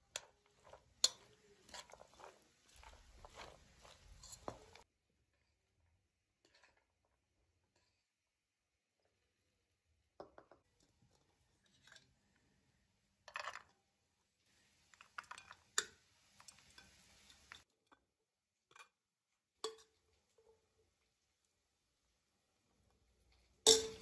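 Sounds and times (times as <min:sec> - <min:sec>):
salad rustling: 0:00.0 - 0:04.8
spoon clicking against dishes: 0:00.2 - 0:01.4.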